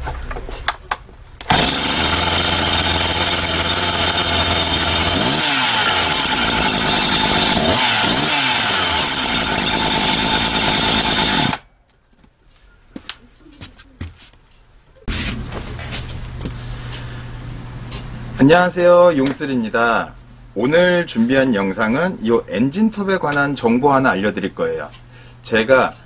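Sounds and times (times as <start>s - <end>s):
chainsaw running at high revs: 1.5s - 11.6s.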